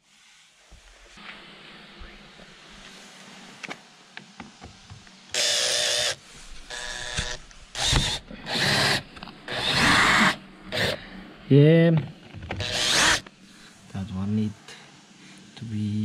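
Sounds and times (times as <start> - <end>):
cordless drill running: 5.3 - 11.0, 12.6 - 13.3.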